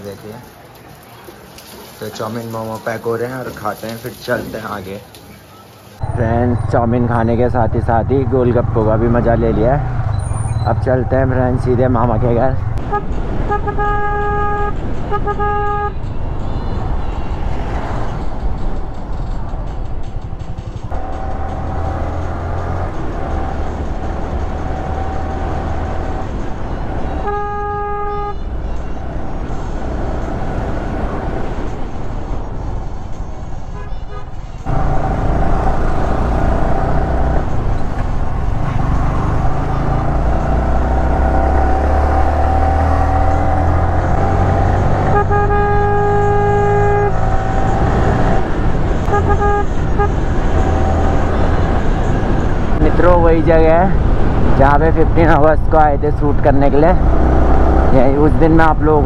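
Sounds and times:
vehicle horn honking: 12.8 - 16.0, 27.2 - 28.5, 33.8 - 34.4, 45.0 - 47.5, 49.1 - 50.3.

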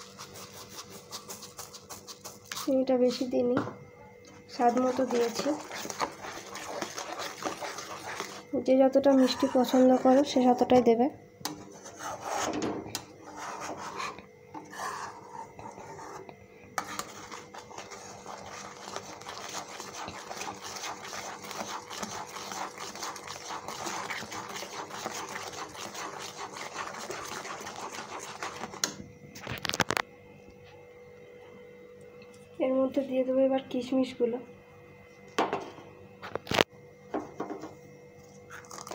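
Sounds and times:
spatula scraping metal pan: 4.6 - 10.4, 11.5 - 28.9.

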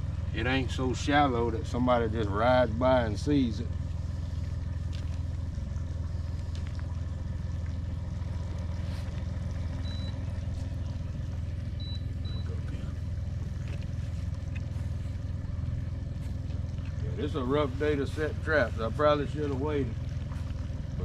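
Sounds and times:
boat motor humming: 0.0 - 21.0
short high beeps: 9.8 - 10.2.

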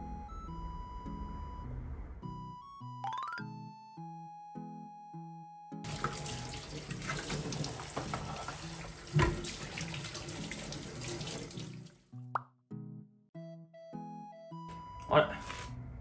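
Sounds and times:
tap running into sink: 5.9 - 11.8.

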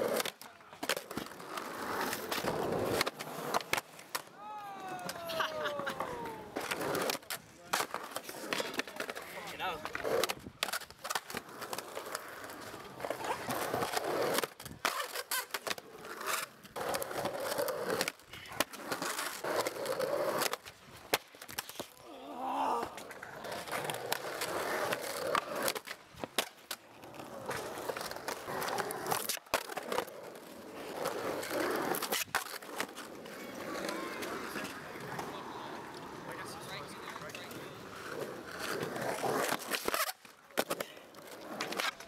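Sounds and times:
skateboard clacking: 0.0 - 22.0
skateboard wheels rolling on concrete: 0.0 - 42.0.

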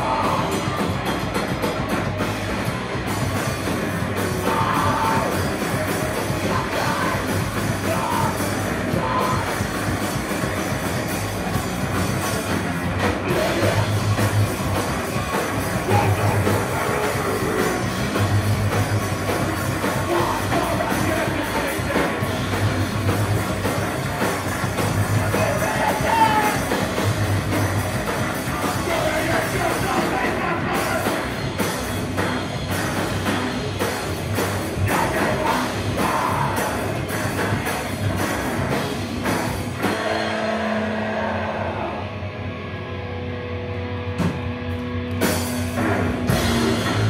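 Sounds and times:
shouted vocals: 0.0 - 0.7, 4.4 - 5.6, 6.3 - 9.6, 15.8 - 18.0, 25.1 - 26.8, 28.5 - 31.3, 34.8 - 37.1
pounding drums: 0.0 - 41.6, 45.2 - 47.0
hardcore band playing: 0.0 - 47.0.

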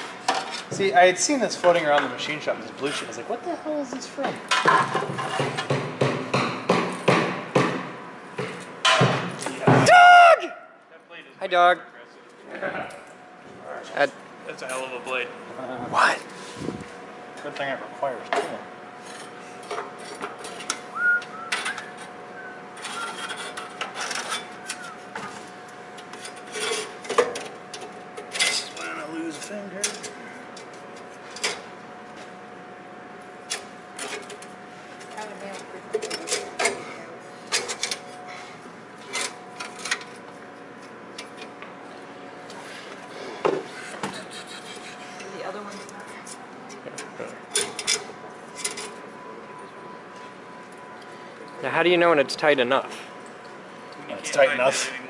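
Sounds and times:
blade squeaks: 22.8 - 23.6.

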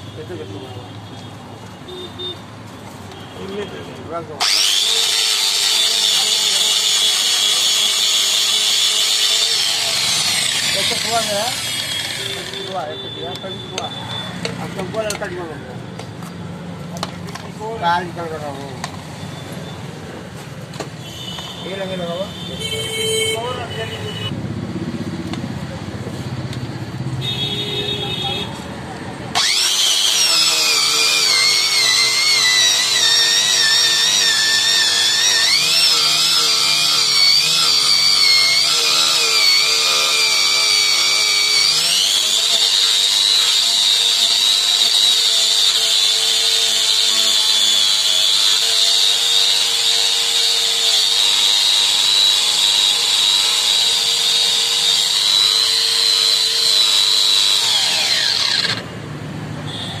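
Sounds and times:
wire brush tool whining: 4.4 - 13.9, 29.3 - 58.9.

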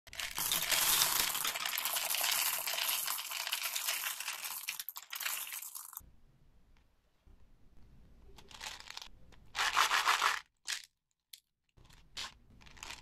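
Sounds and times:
candies rattling into a glass bowl: 0.1 - 6.0, 8.4 - 10.9, 11.8 - 13.0.

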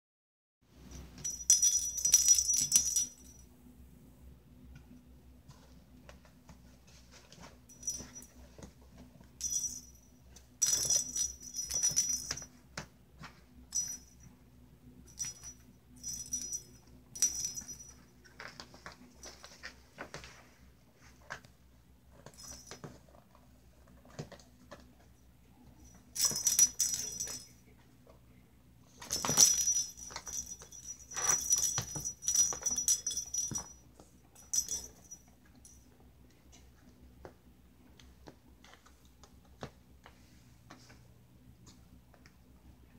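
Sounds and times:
bell in toy ball jingling: 0.9 - 3.5, 7.7 - 8.4, 9.4 - 12.6, 13.7 - 14.3, 15.1 - 18.1, 25.8 - 27.6, 29.0 - 33.8, 34.4 - 35.8.

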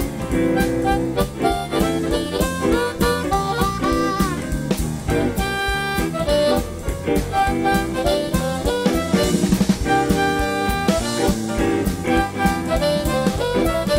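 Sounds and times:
amplified harmonica lead: 0.0 - 13.9
blues band playing: 0.0 - 13.9.

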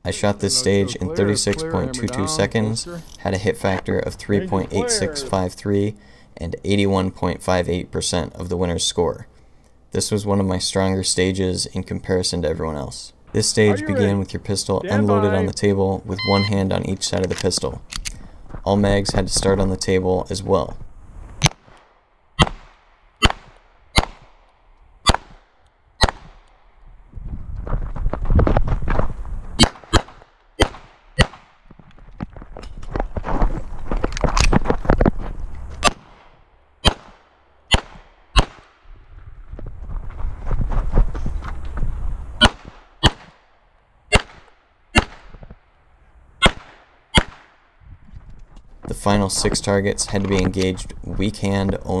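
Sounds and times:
pistol shots: 22.4 - 24.3, 25.1 - 25.4, 29.6 - 31.6, 35.8 - 38.8, 42.4 - 43.4, 44.1 - 45.3, 46.4 - 47.6
pistol shots with echo: 35.9 - 38.8, 44.1 - 45.3, 46.4 - 47.6.

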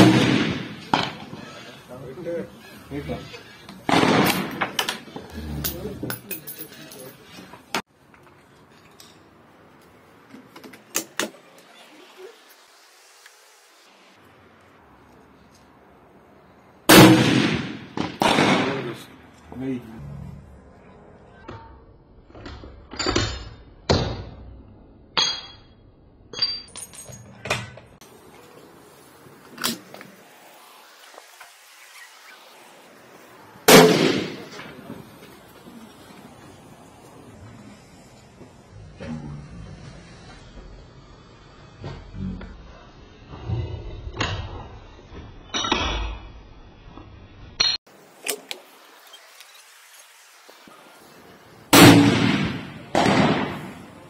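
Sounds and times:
rifle shots: 0.0 - 1.6, 3.9 - 5.0, 16.9 - 19.1, 33.7 - 35.0, 51.7 - 54.0.

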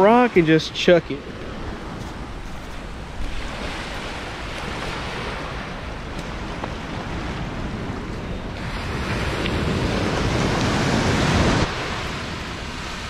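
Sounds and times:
small waves washing on beach: 0.0 - 13.0
wind rumble on microphone: 1.0 - 13.0.

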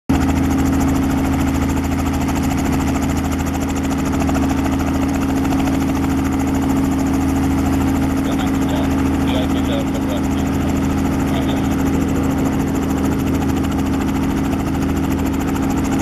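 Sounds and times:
helicopter running on ground: 0.1 - 16.0.

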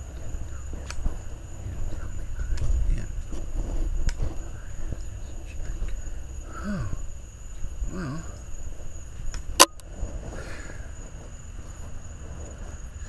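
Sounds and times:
sharp click: 9.3 - 9.8.

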